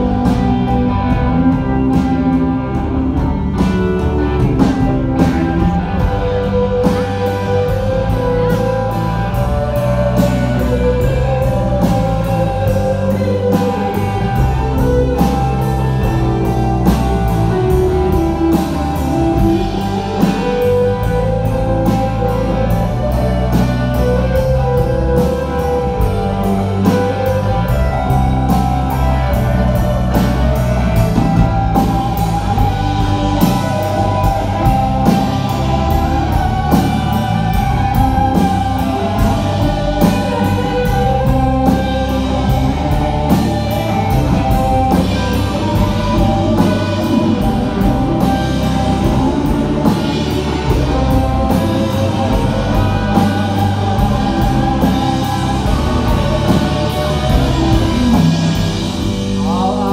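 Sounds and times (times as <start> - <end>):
electric bass: 0.0 - 59.9
electric guitar melody: 0.0 - 59.9.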